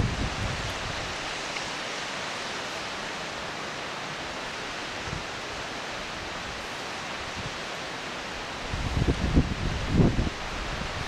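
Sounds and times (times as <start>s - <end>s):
wind gust on microphone: 0.0s - 1.5s, 8.3s - 11.0s
waterfall rushing: 0.0s - 11.0s.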